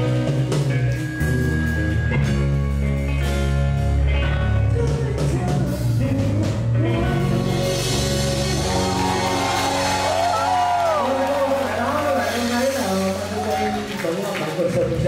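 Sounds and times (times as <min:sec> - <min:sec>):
bass guitar: 0:00.0 - 0:15.0
drum kit: 0:00.0 - 0:15.0
electric guitars: 0:00.0 - 0:15.0
man singing: 0:04.2 - 0:09.0.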